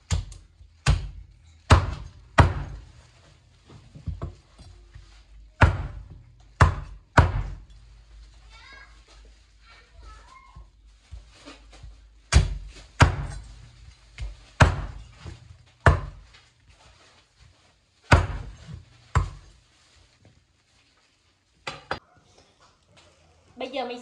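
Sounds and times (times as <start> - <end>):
knife chopping on board: 0.1 - 2.9, 5.6 - 7.6, 12.3 - 13.5, 14.2 - 16.2, 18.1 - 19.4.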